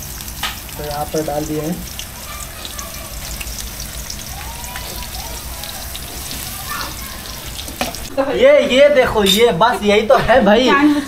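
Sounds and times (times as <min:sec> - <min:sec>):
onions sizzling in hot oil: 0:00.0 - 0:08.1.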